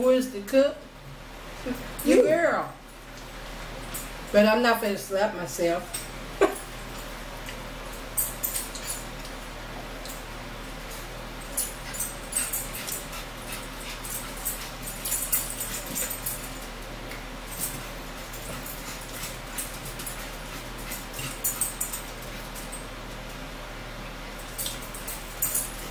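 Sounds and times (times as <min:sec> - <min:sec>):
steady low hum: 0:00.0 - 0:25.9
forks clicking on plates: 0:08.2 - 0:09.4, 0:11.4 - 0:16.6, 0:17.5 - 0:22.8, 0:24.5 - 0:25.9.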